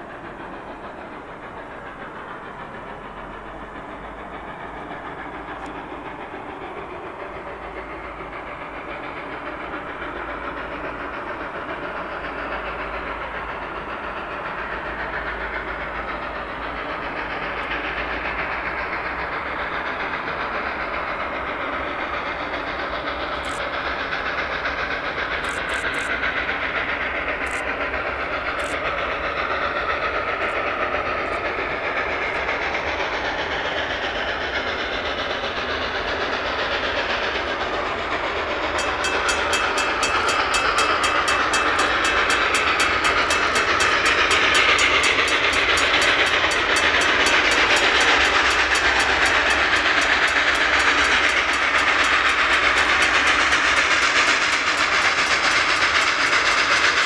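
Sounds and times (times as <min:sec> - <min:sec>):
steam locomotive approaching: 0:00.0 - 0:57.0
fast even chuffing beat: 0:36.2 - 0:57.0.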